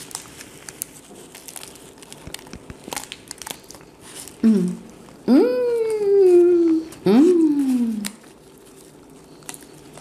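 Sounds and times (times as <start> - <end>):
pastry crust crackling while chewed: 0.0 - 10.0
person humming: 4.4 - 8.2.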